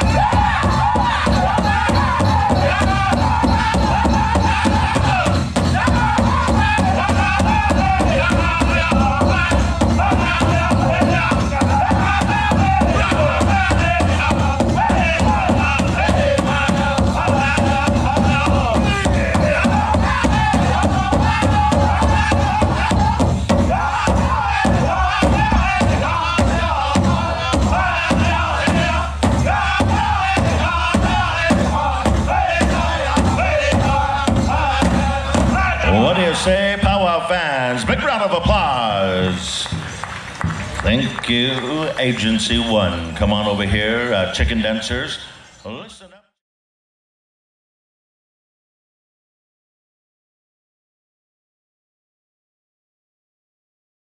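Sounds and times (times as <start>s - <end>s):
group singing in chorus: 0.0s - 36.6s
big drum beating: 0.0s - 41.8s.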